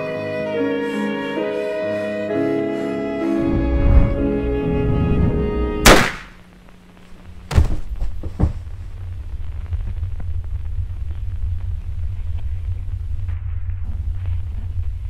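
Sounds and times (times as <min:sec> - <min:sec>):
string and piano music: 0:00.0 - 0:05.8
low rumble: 0:03.3 - 0:05.9, 0:07.2 - 0:15.0
handgun shot: 0:05.8 - 0:06.4
thuds: 0:07.5 - 0:08.8.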